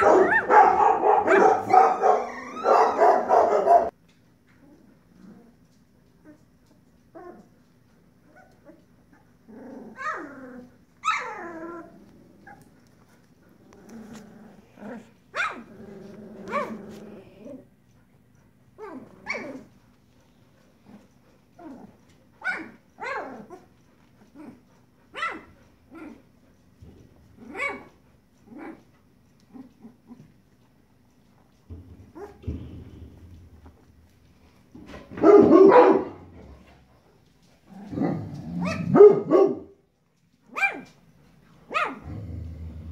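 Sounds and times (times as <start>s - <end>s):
puppies squeaking: 1.6s - 3.9s.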